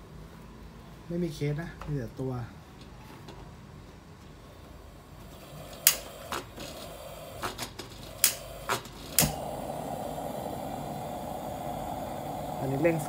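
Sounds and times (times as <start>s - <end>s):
lantern hissing: 4.9s - 13.0s
igniter clicks: 5.7s - 6.8s, 7.4s - 9.8s.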